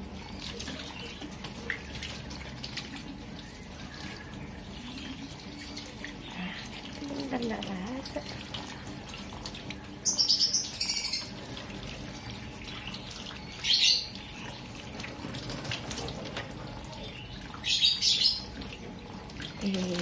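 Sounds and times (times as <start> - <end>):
water splashing in a sink: 0.0 - 20.0.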